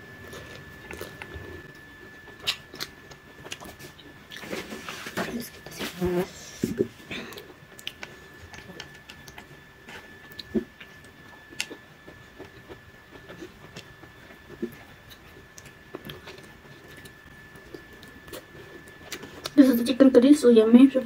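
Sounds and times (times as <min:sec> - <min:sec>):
soft chewing: 0:00.2 - 0:19.6.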